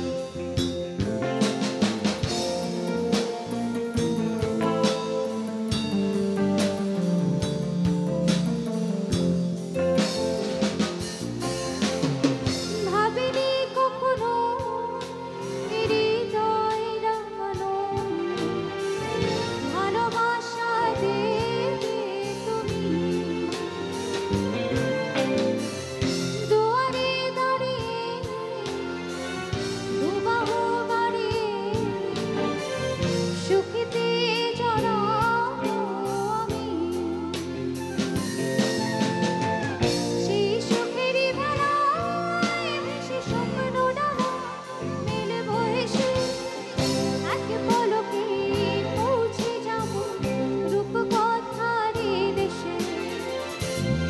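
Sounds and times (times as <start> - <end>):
live band playing: 0.0 - 54.0
woman singing into microphone: 12.6 - 24.0, 26.4 - 37.7, 39.8 - 53.4.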